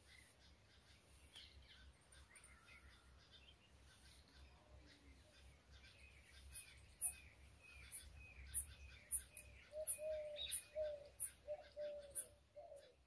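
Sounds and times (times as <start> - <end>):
birds chirping: 0.0 - 13.0
dove cooing: 9.7 - 13.0.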